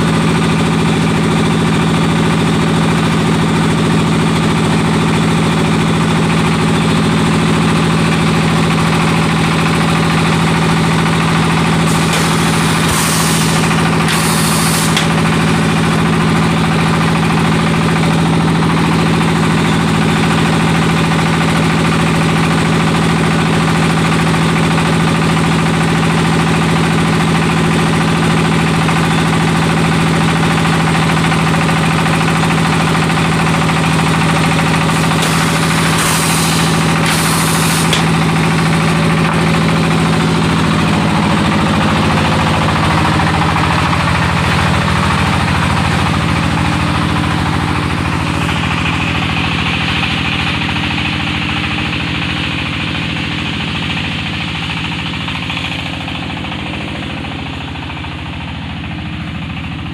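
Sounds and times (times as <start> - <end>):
brick machine mechanical hum: 0.0 - 53.2
short hisses: 11.9 - 15.0.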